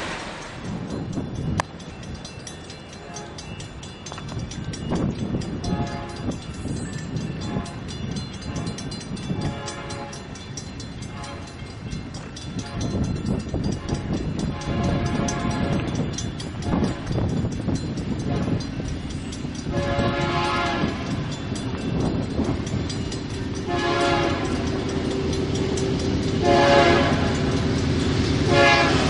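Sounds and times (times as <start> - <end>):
distant locomotive air horn: 5.6 - 6.3, 11.2 - 11.5, 13.8 - 15.9, 19.7 - 21.0, 23.6 - 24.6, 26.4 - 27.4, 28.5 - 29.0.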